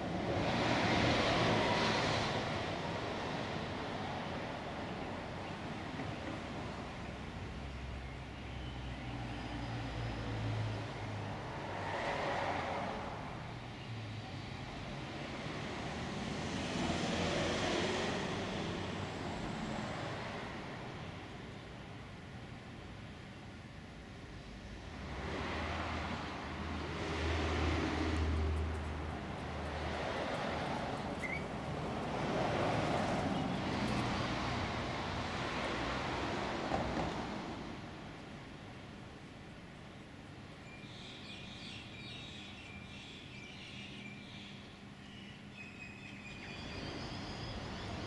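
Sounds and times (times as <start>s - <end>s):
vehicle passing: 0.0s - 4.7s, 9.1s - 20.9s, 25.0s - 38.0s
traffic rumble: 0.0s - 48.0s.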